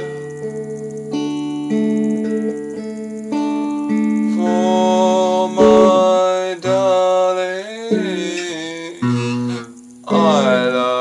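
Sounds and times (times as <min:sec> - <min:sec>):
guitar chords: 0:00.0 - 0:11.0
man singing held notes: 0:04.3 - 0:09.4, 0:10.1 - 0:11.0.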